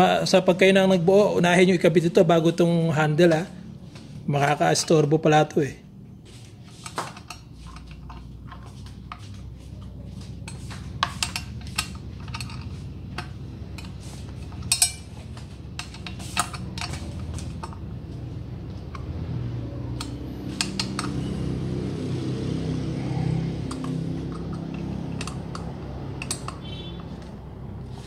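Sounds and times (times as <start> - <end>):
low background hum: 0.0 - 28.0
plastic and metal parts clicking: 20.0 - 21.2, 23.7 - 27.3.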